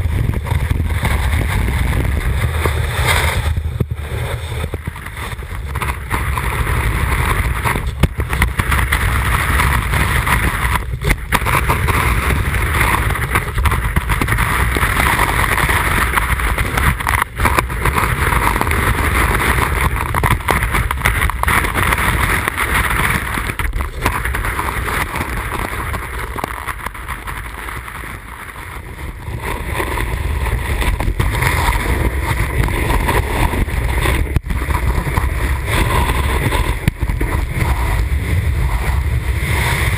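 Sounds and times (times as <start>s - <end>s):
snowboard edge carving snow: 0.0s - 39.9s
wind rumble on microphone: 0.0s - 39.9s.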